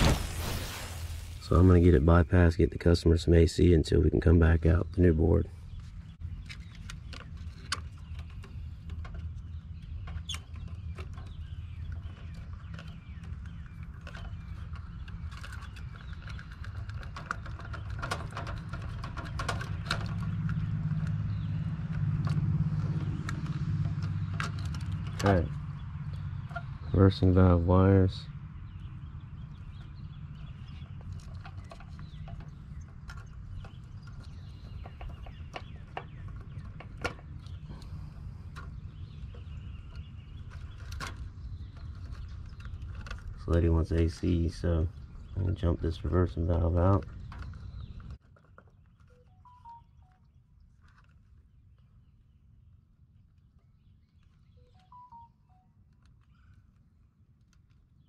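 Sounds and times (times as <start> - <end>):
clicks and rattles of wires: 5.8 - 26.8, 29.6 - 49.2, 55.8 - 58.0.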